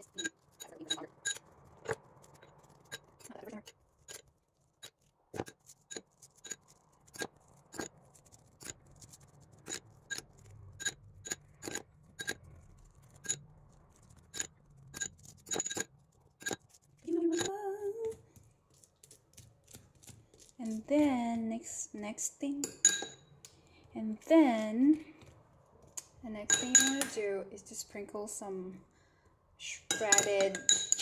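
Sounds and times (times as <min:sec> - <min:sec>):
metal spoon clinking: 0:00.0 - 0:01.4, 0:14.4 - 0:16.6, 0:17.2 - 0:17.6, 0:22.6 - 0:23.4, 0:26.5 - 0:27.2, 0:29.8 - 0:31.0.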